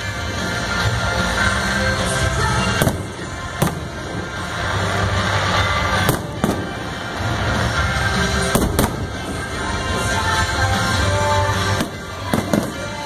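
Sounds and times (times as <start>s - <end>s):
music: 0.0s - 13.0s
firework shells bursting: 2.6s - 11.0s, 11.6s - 13.0s.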